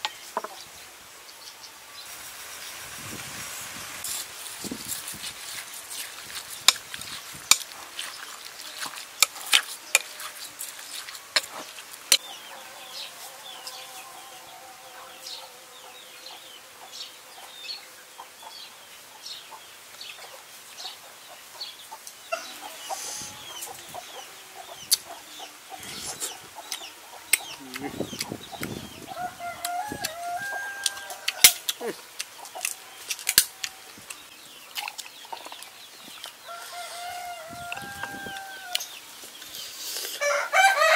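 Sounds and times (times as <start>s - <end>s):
chickens clucking: 18.2s - 40.4s.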